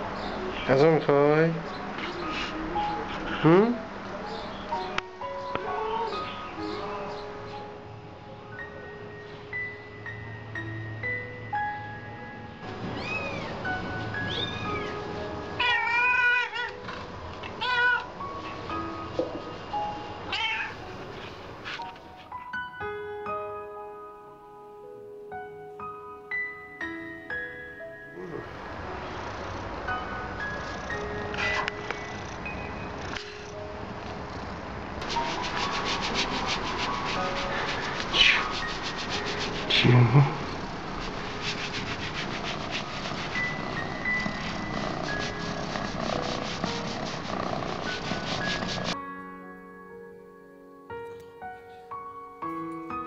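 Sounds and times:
soft background music: 0:00.0 - 0:53.0
cat meowing: 0:12.9 - 0:13.6, 0:14.3 - 0:15.0, 0:15.6 - 0:16.8, 0:17.5 - 0:18.1, 0:20.3 - 0:20.8
scratching against window: 0:35.0 - 0:39.9, 0:40.6 - 0:49.0.

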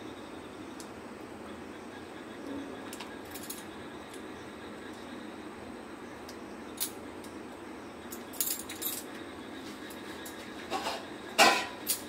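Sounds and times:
faint steady hum: 0:00.0 - 0:12.0
kitchen utensils clicking and clinking: 0:10.7 - 0:12.0.

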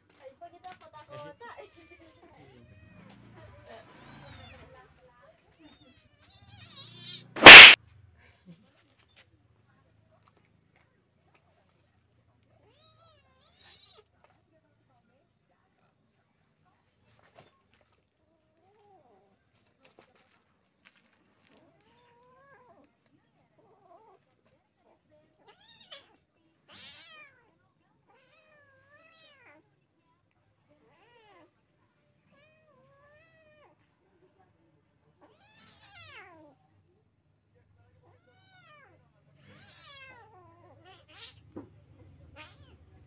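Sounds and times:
cat mewing: 0:06.4 - 0:07.8
cats scuffling: 0:19.5 - 0:22.1.

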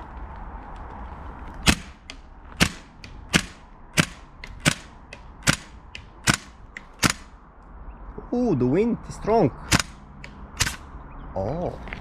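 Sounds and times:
wind rumble on microphone: 0:00.0 - 0:06.6
airsoft gun shots: 0:01.6 - 0:07.3, 0:09.7 - 0:10.0, 0:10.6 - 0:10.8.

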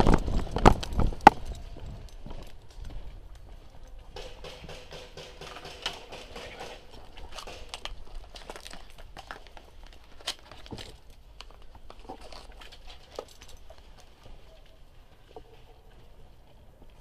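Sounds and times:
rustle of gear: 0:06.5 - 0:17.0.

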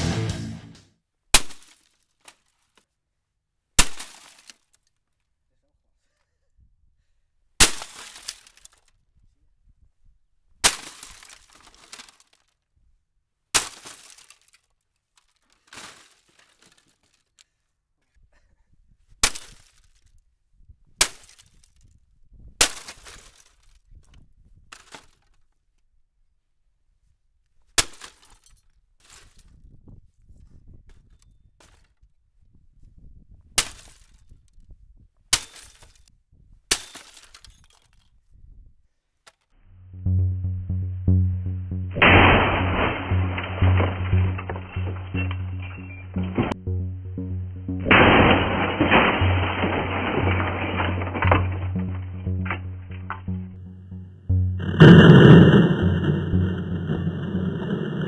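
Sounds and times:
axe chopping plastic: 0:03.8 - 0:04.5
plastic pieces clattering: 0:10.9 - 0:12.5.

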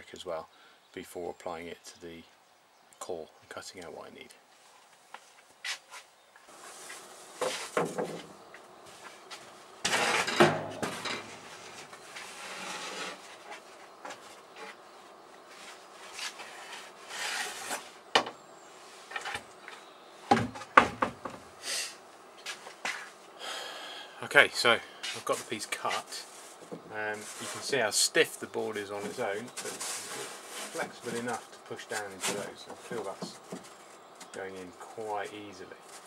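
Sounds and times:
foam board scraping: 0:06.5 - 0:08.2, 0:09.0 - 0:14.8, 0:15.5 - 0:18.0, 0:25.0 - 0:27.9, 0:28.9 - 0:33.9
sharp knocks and clatter: 0:07.4 - 0:08.3, 0:09.8 - 0:11.5, 0:20.3 - 0:21.4.

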